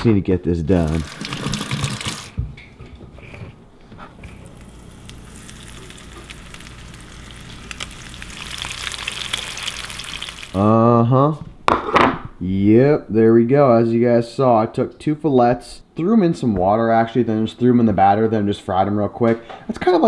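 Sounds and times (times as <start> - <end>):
fish frying in hot oil: 4.3 - 10.6.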